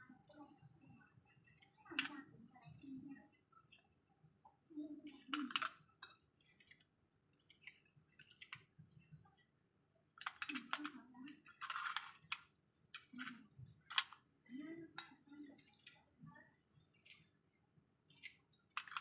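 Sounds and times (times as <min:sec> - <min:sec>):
scissors snipping green onion: 0:01.4 - 0:02.1, 0:05.0 - 0:05.6, 0:06.4 - 0:08.7, 0:15.6 - 0:16.0, 0:16.7 - 0:17.4, 0:18.1 - 0:19.0.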